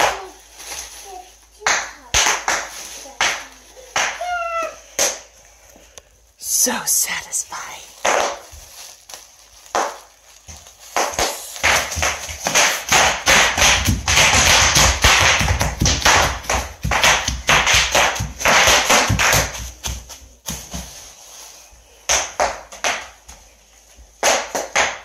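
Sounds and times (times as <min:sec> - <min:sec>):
bubble wrap popping: 0:00.0 - 0:05.3, 0:07.2 - 0:21.4
plastic crinkling: 0:00.0 - 0:06.0, 0:07.5 - 0:21.7
small feet thudding on floor: 0:09.7 - 0:21.1.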